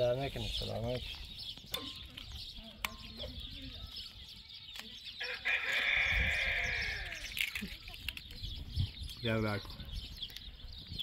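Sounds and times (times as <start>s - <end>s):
rooster crowing: 5.2s - 7.2s.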